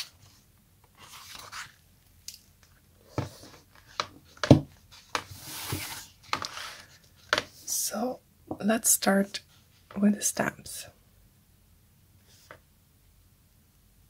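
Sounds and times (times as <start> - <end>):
notebook pages turning: 0.0 - 1.8.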